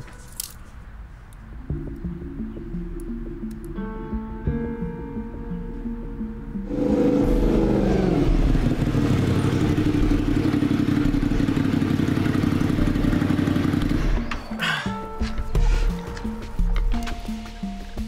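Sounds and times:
motorcycle engine running: 6.7s - 14.4s.

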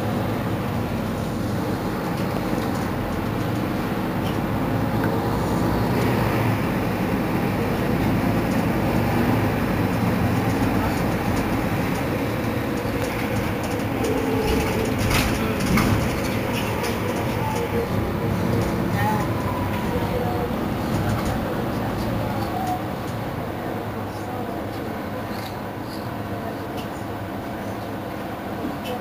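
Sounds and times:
bus engine idling: 0.0s - 29.0s.

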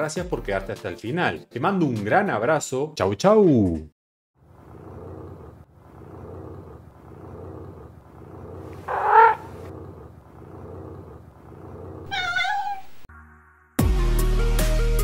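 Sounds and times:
cat purring: 4.4s - 13.1s
cat meowing: 8.8s - 9.7s, 12.0s - 13.1s.

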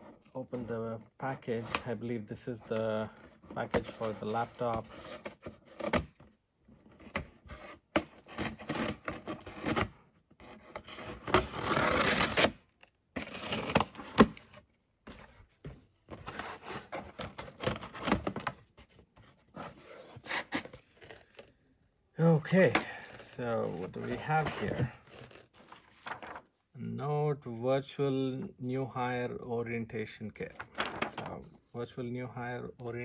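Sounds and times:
scissors scraping cardboard: 3.1s - 12.6s, 16.1s - 21.6s, 23.6s - 25.9s.

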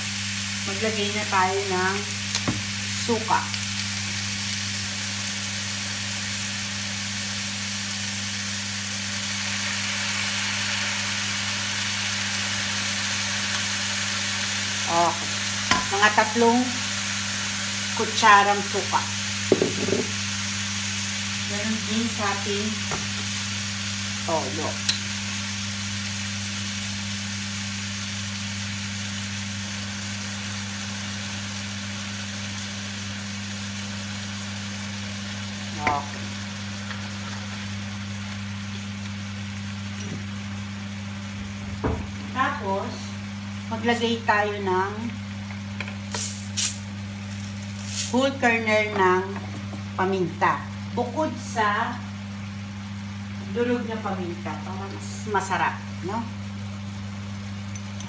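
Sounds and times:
meat sizzling in a wok: 0.0s - 58.0s.

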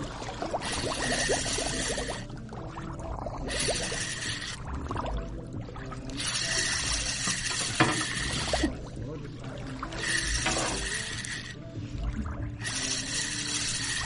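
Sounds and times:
water splashing against hull: 0.0s - 14.0s
fishing reel click: 0.6s - 2.3s, 3.5s - 4.6s, 6.1s - 8.8s, 10.0s - 11.7s, 12.6s - 14.0s.

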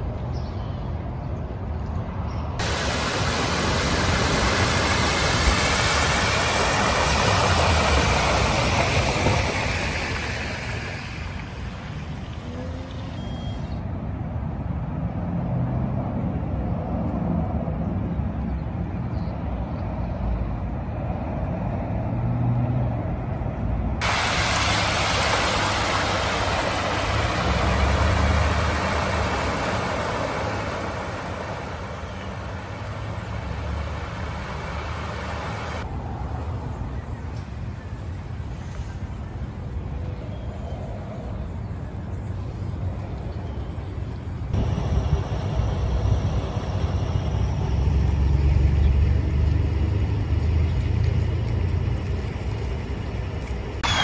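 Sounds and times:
tyres hissing through water: 2.6s - 13.8s, 24.0s - 35.8s
vehicle engines running: 24.0s - 35.9s, 44.3s - 54.0s.

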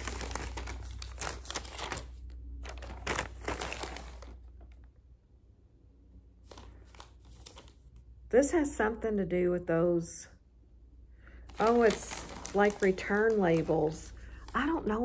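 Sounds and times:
packaging crinkling and rustling: 0.0s - 4.9s, 6.4s - 8.0s, 11.5s - 15.0s.

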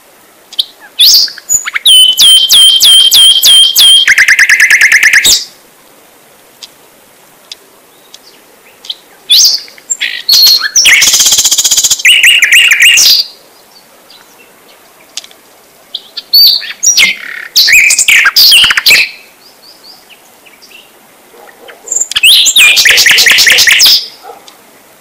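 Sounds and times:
bird chirping and trilling: 0.6s - 5.5s, 7.9s - 15.2s, 15.9s - 21.0s, 21.7s - 24.2s.

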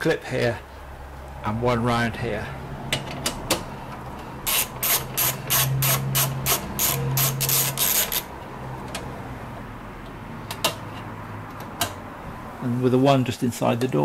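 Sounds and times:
socket ratchet clicking: 4.5s - 8.3s.

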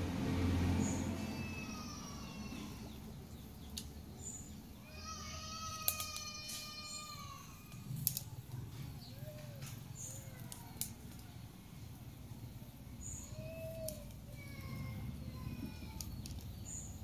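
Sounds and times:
faint clicks: 13.7s - 14.4s, 15.7s - 16.8s.

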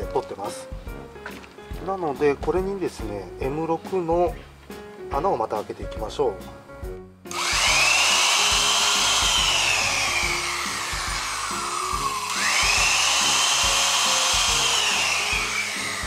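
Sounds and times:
electric drill boring into wood: 7.3s - 16.0s.

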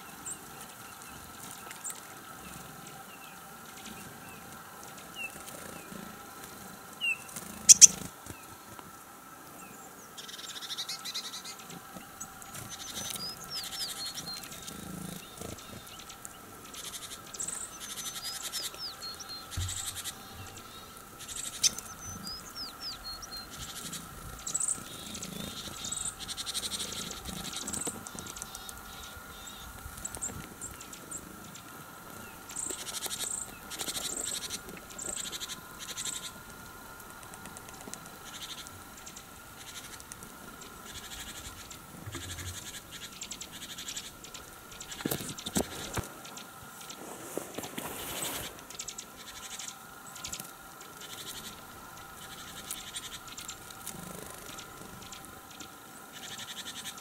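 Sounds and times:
birds calling: 0.0s - 8.7s, 9.5s - 57.0s
birds pecking and scratching: 0.0s - 9.4s, 10.2s - 57.0s.

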